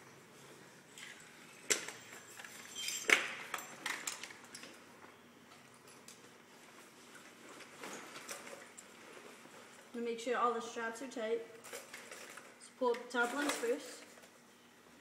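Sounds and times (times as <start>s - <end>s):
buckles and metal fittings clinking: 0.9s - 4.8s.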